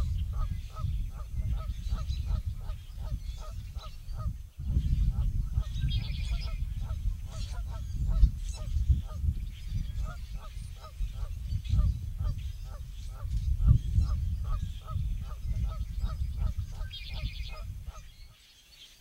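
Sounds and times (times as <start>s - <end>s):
songbird trill: 0.0s - 19.0s.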